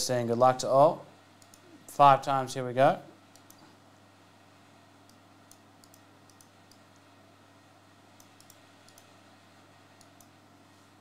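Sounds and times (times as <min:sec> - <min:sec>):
low electrical hum: 0:00.0 - 0:11.0
computer mouse clicks: 0:01.4 - 0:01.7, 0:03.3 - 0:03.6, 0:05.0 - 0:07.1, 0:08.2 - 0:09.2, 0:10.0 - 0:10.4.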